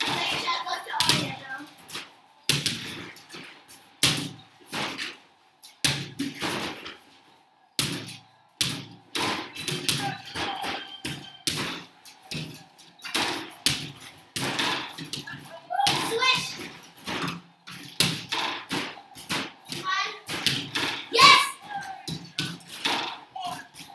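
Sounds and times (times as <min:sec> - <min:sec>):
basketballs hitting backboard and rim: 0:00.0 - 0:23.9.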